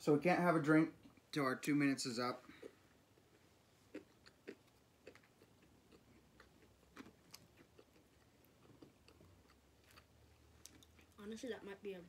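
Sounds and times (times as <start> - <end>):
chewing crunchy toast: 2.4 - 11.2.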